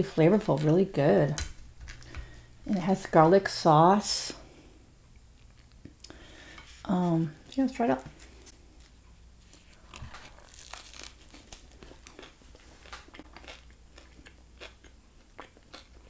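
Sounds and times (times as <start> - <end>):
biting and chewing taco: 9.4 - 16.0.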